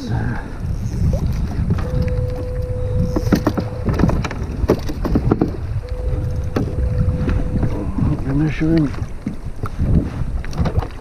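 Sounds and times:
water moving around kayak: 0.0 - 11.0
wind buffeting microphone: 0.0 - 11.0
knocks and clicks on hull: 1.0 - 11.0
thin steady tone: 5.8 - 8.5.

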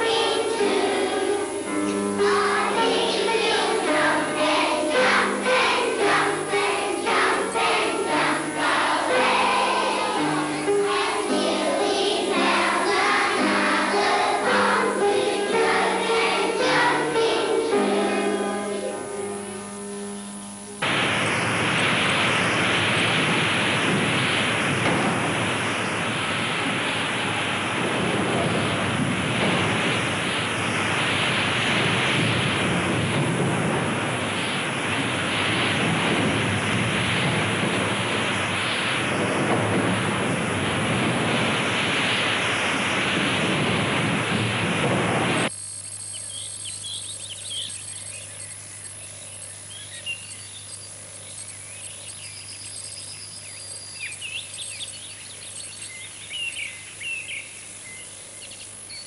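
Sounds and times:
heavy rain: 0.0 - 19.8, 20.8 - 45.5
faint chirping: 0.0 - 23.2, 45.4 - 59.0
wind: 0.0 - 59.0.

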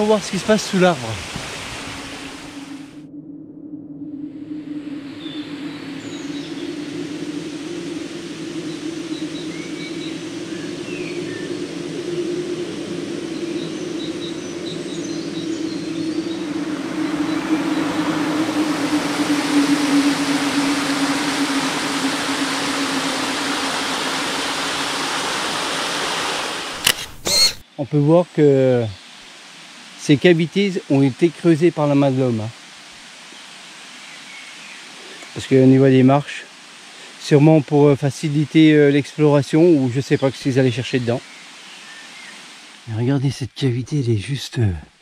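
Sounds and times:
waterfall rushing: 0.0 - 3.0, 5.8 - 27.6, 29.0 - 37.7
low drone: 1.8 - 27.6
faint chirps: 4.4 - 24.9.

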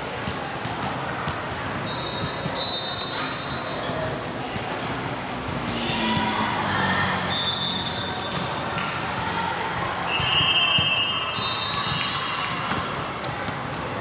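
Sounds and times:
volleyballs bouncing and being hit: 0.0 - 14.0
scattered voices: 3.3 - 10.4.

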